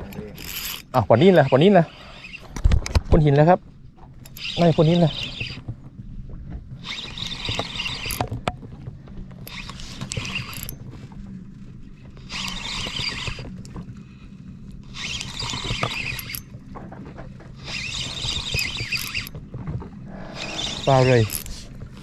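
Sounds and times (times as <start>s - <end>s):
fishing reel whirring: 0.0s - 2.6s, 4.2s - 5.6s, 6.8s - 8.3s, 9.4s - 10.8s, 12.2s - 13.9s, 14.8s - 16.6s, 17.6s - 19.4s, 20.2s - 21.7s
steady low hum: 0.0s - 22.0s.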